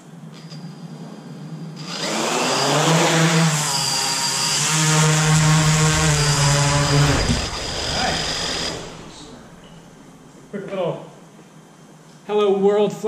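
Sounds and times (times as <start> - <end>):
drone propellers whining: 1.8 - 10.5.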